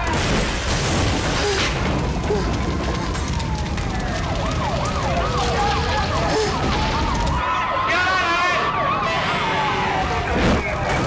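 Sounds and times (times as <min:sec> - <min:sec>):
siren wailing: 0:01.6 - 0:11.0
siren yelping: 0:02.1 - 0:10.9.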